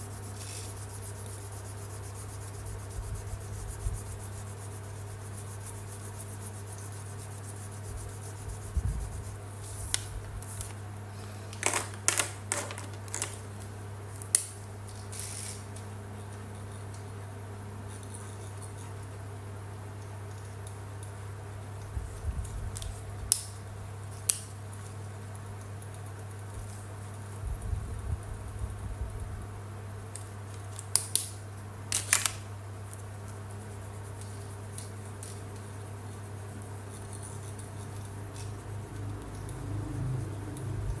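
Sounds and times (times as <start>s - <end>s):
marker scratching on paper: 0.0s - 10.0s
steady low hum: 0.0s - 11.6s, 13.3s - 41.0s.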